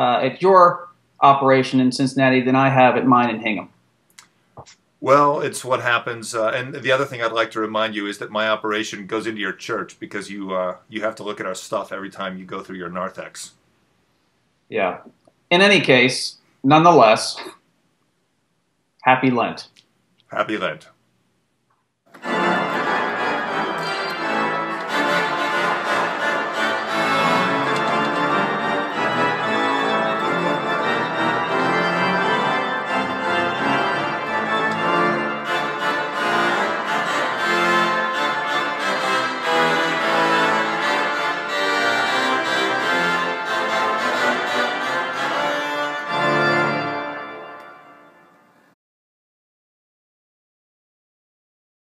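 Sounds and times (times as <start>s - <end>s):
church organ music: 22.1s - 48.8s.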